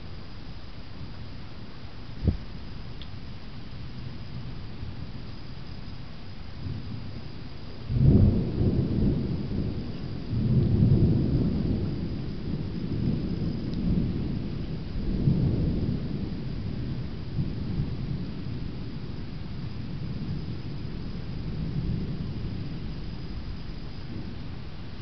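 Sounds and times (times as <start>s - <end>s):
rolling thunder: 2.2s - 2.8s, 6.5s - 25.0s.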